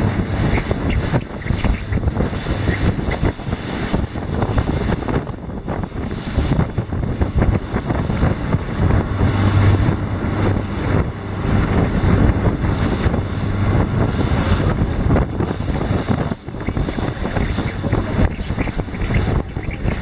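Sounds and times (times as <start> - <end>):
motorboat engine hum: 0.0 - 20.0
water rushing past hull: 0.0 - 20.0
wind buffeting microphone: 0.0 - 20.0.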